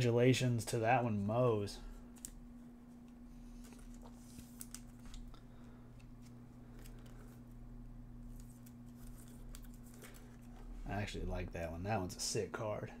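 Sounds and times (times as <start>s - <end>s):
card rustling against plastic sleeve: 1.0s - 10.8s.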